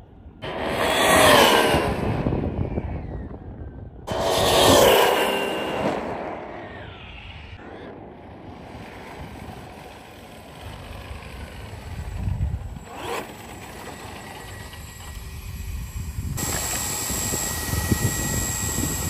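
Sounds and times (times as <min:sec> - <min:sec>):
electric motor whine: 0:10.0 - 0:19.0.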